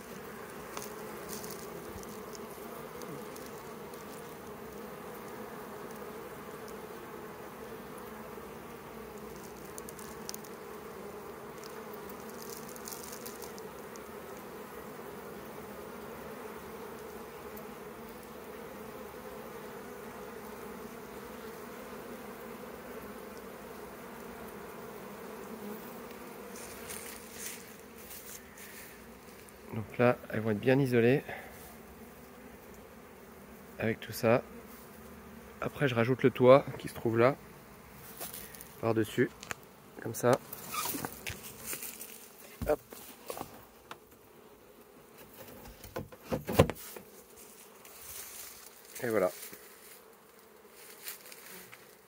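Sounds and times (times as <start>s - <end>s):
honeybees buzzing: 0.0s - 52.0s
short scratchy noises: 40.5s - 43.5s.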